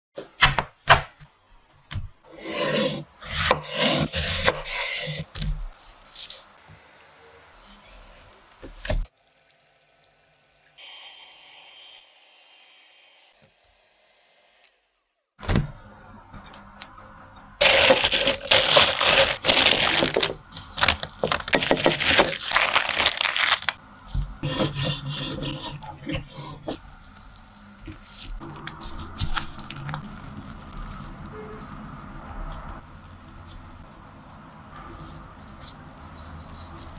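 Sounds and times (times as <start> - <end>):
plastic piping bag crinkling: 17.6 - 23.8
knife rasping through peel: 24.4 - 26.8.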